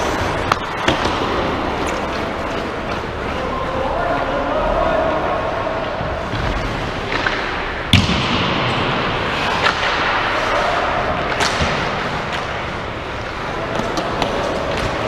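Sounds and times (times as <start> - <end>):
hockey sticks clacking on puck: 0.0 - 3.6, 9.3 - 15.0
arena noise: 0.0 - 15.0.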